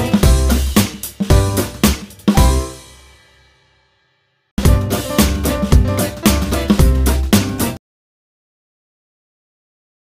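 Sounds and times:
music with drum kit beat: 0.0 - 3.5, 4.6 - 7.8.

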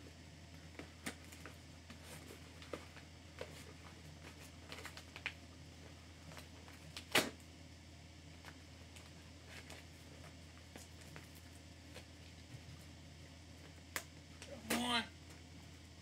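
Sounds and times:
low steady hum: 0.0 - 16.0
package clicks and crinkles: 4.4 - 5.4.

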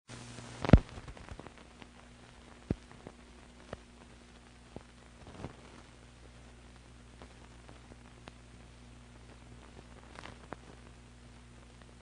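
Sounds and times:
film soundtrack hiss: 0.1 - 12.0
pops and clicks: 0.6 - 3.9, 9.7 - 10.9.

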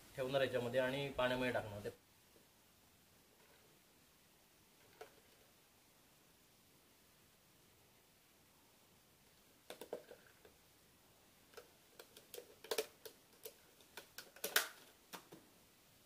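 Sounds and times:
plastic bottle crackling and clicking: 9.6 - 10.6, 11.5 - 15.4.

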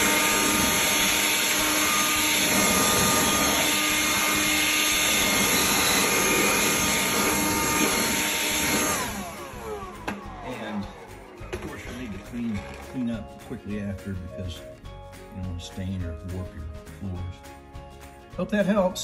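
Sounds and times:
blower winding down: 0.0 - 13.8
electric blower whining: 0.0 - 13.8.

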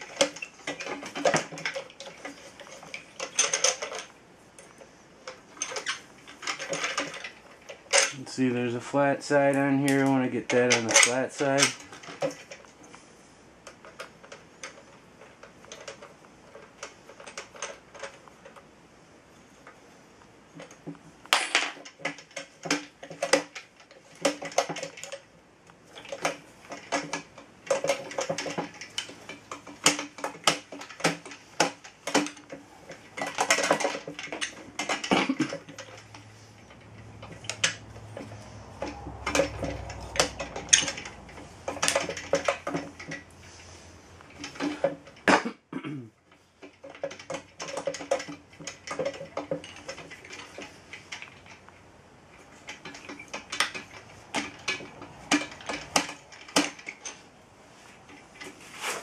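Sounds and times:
crank handle turning: 0.0 - 4.1, 5.2 - 12.6, 25.9 - 45.3, 46.3 - 51.7, 52.3 - 57.2
metallic clinks and knocks: 0.0 - 8.2, 25.9 - 43.4, 46.3 - 51.7, 52.3 - 57.3.

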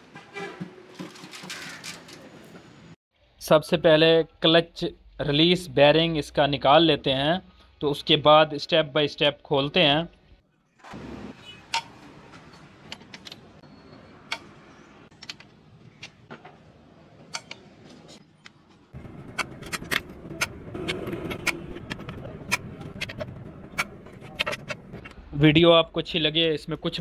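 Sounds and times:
steady background noise: 10.3 - 27.0.

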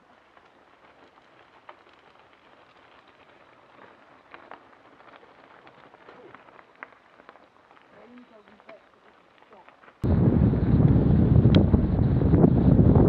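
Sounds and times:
stones clicking and popping: 0.0 - 10.0
bike tyres rolling over gravel: 0.0 - 13.0.

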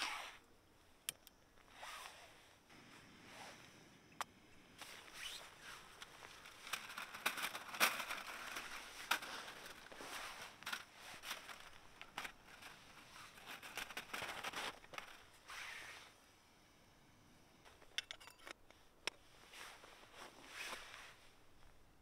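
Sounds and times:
crinkly rustling: 4.8 - 15.9
metal windscreen clicks and knocks: 5.9 - 15.3.

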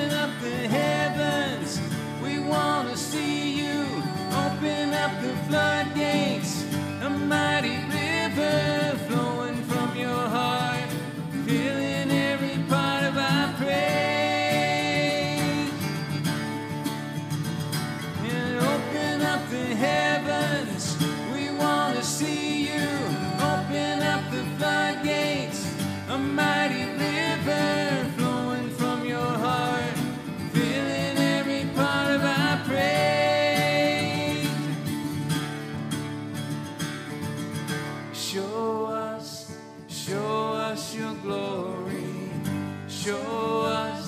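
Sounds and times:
woman singing: 0.0 - 10.3, 11.5 - 15.9, 18.2 - 34.8
acoustic guitars strumming: 0.0 - 44.0.

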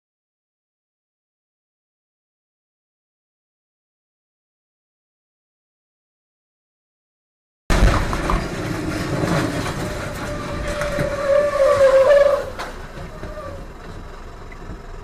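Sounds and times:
truck road noise on wet highway: 7.7 - 15.0.

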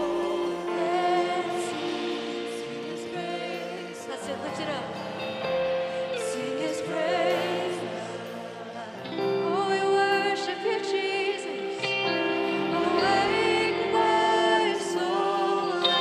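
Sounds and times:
worship band with singing: 0.0 - 16.0.

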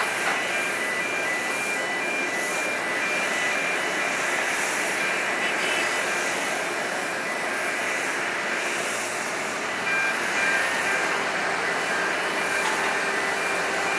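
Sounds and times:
jet airliner engines rushing: 0.0 - 13.9.

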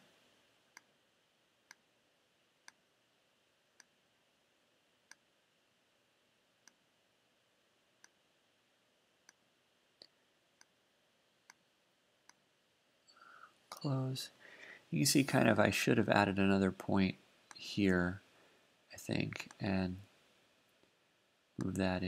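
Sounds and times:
faint room hiss: 0.0 - 22.0
computer mouse clicks: 9.2 - 9.4.

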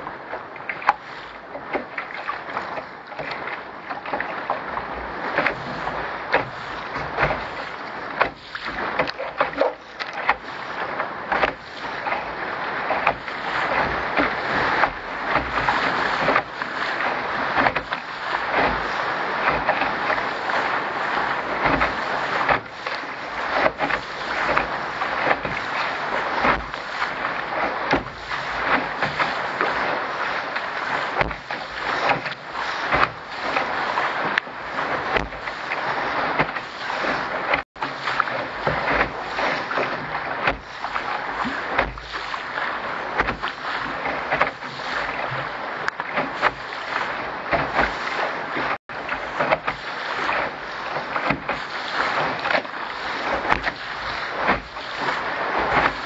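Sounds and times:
water slapping against hull: 0.0 - 56.0.

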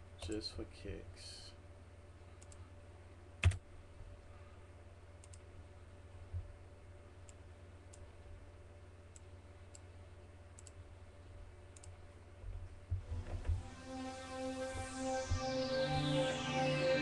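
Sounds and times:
low steady hum: 0.0 - 17.0
computer mouse clicks: 2.4 - 2.6, 5.2 - 5.5, 9.1 - 9.9, 10.5 - 10.8, 11.7 - 12.0.

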